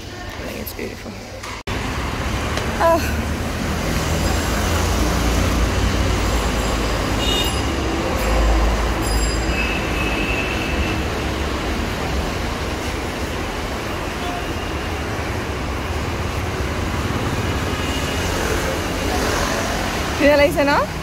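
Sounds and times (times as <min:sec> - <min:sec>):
city road traffic rumble: 0:00.0 - 0:21.0.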